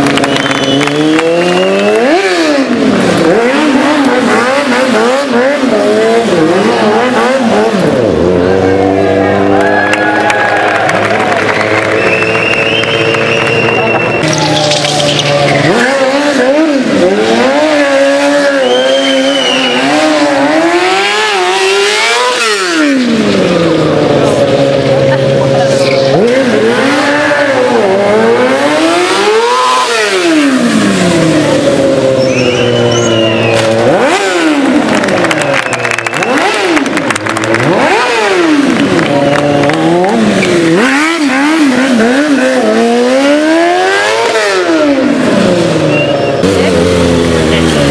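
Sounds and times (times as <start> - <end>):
motorcycle engine revving: 0.0 - 47.9
tyre squeal: 32.1 - 33.8, 45.9 - 46.6.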